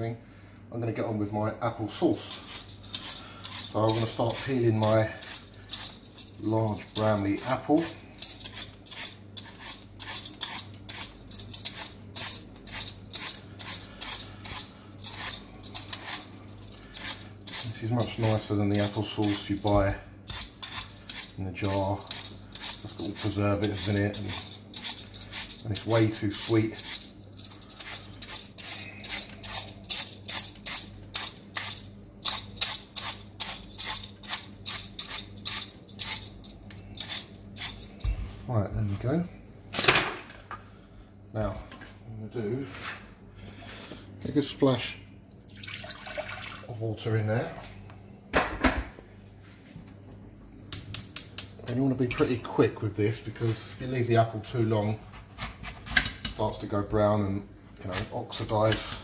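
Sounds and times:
vegetable peeler scraping apple: 2.0s - 38.2s.

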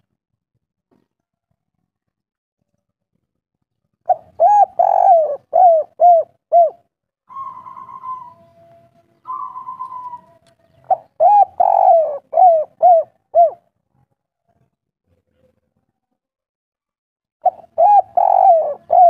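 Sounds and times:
dove cooing: 4.1s - 13.6s, 17.4s - 19.0s
soft rolling bird notes: 7.3s - 13.5s.

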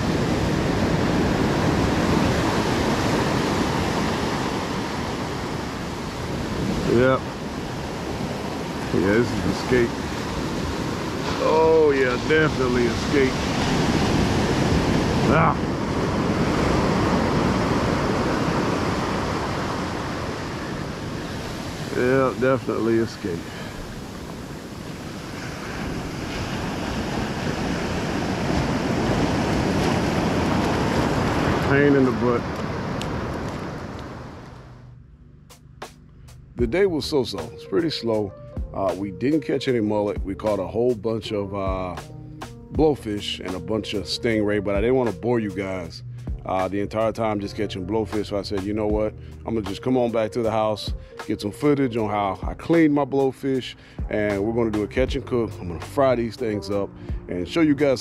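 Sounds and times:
ocean surf breaking: 0.0s - 34.8s, 55.6s - 58.0s
wind on microphone: 0.0s - 34.8s.

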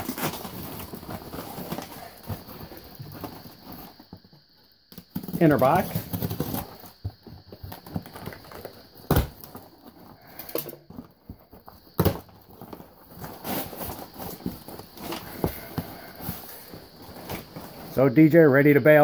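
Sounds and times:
cardboard flaps scraped and bent: 0.0s - 4.0s.

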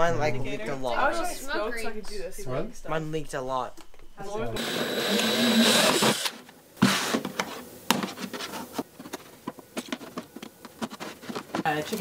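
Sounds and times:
cordless drill boring into plastic: 4.6s - 6.4s.

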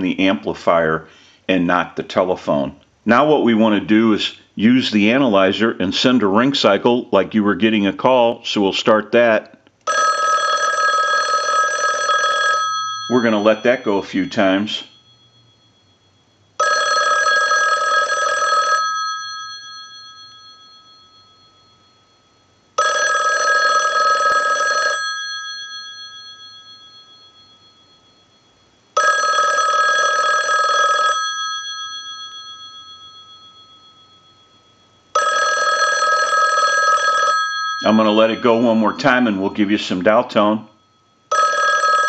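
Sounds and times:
telephone bell ringing: 9.9s - 42.0s.

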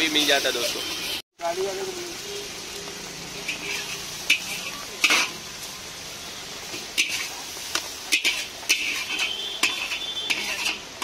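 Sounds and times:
metal spatula clanking on wok: 3.4s - 5.4s, 8.1s - 11.0s.

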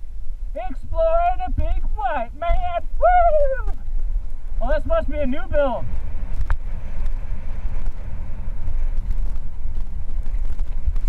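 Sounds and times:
wind noise on microphone: 0.0s - 11.0s.

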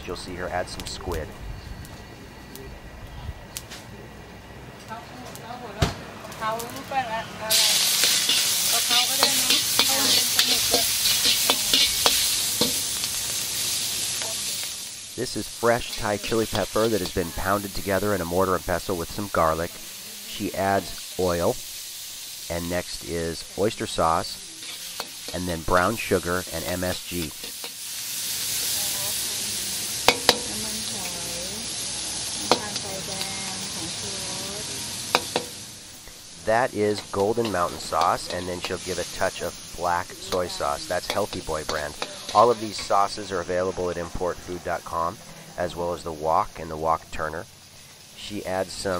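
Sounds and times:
squid sizzling in hot oil: 6.3s - 48.9s
metal turner clanking on wok: 7.5s - 14.4s, 30.0s - 31.2s, 35.1s - 35.6s, 40.2s - 43.2s
wok turner scraping the pan: 7.5s - 45.5s.

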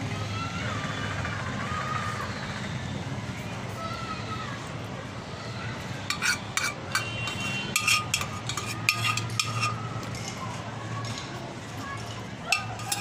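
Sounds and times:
metal spoon scraping a pot: 6.1s - 10.3s, 12.5s - 13.0s.

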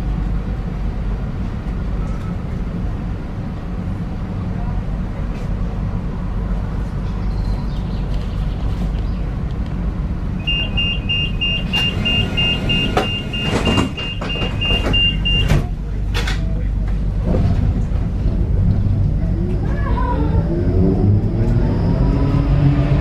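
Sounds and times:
tram rumbling: 0.0s - 23.0s
rapid electronic warning beeps: 10.4s - 15.5s.

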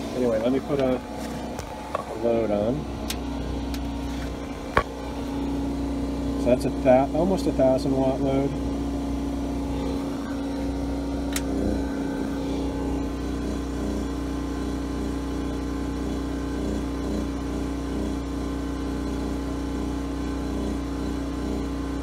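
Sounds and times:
generator engine running: 0.0s - 22.0s.

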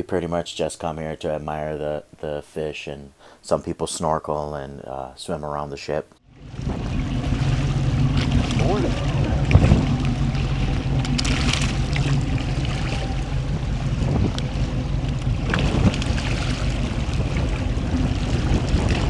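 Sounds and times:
boat engine idling: 6.2s - 19.0s
water sloshing and splashing: 6.3s - 19.0s
wind on microphone: 6.4s - 19.0s.

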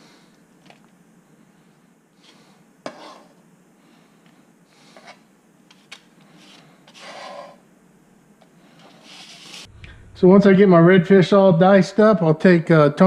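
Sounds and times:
knife scraping on cutting board: 2.8s - 3.4s, 6.4s - 7.6s.

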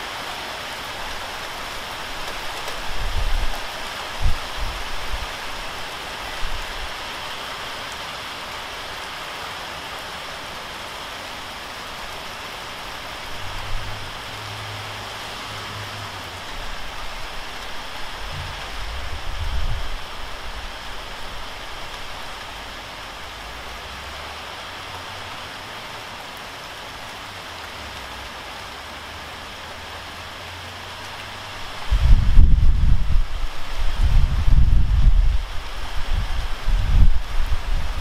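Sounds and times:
rain on pavement and cars: 0.0s - 38.0s
low thumps and rumbles: 18.3s - 19.8s.

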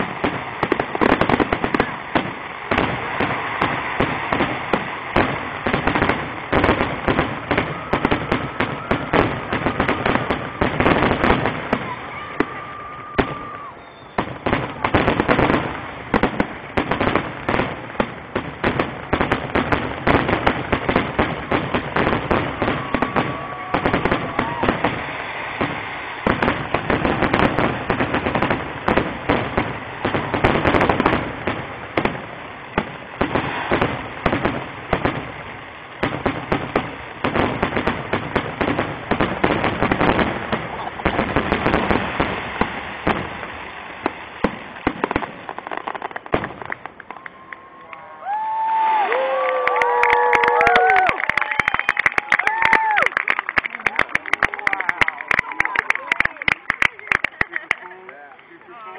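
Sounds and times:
fireworks bursting and crackling: 0.0s - 58.9s.

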